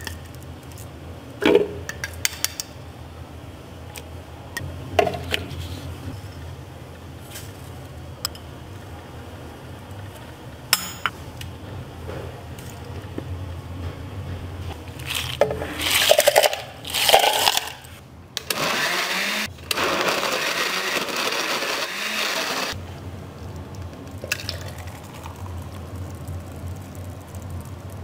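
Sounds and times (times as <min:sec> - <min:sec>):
blender running with ice: 0:18.4 - 0:22.8.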